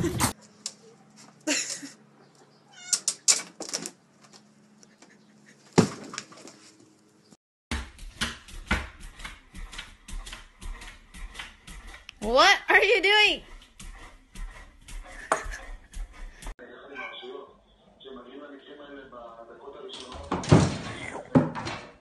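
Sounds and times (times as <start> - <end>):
knocks and scrapes: 7.7 - 16.5
cat meowing: 16.9 - 17.4.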